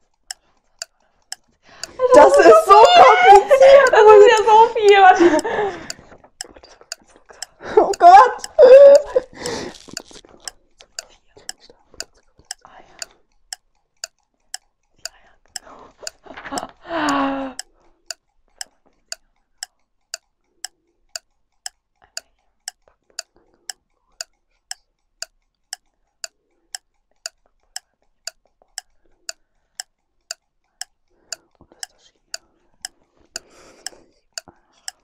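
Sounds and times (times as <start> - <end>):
faint murmured reading: 0.0 - 13.3
kitchen timer ticking: 0.0 - 35.0.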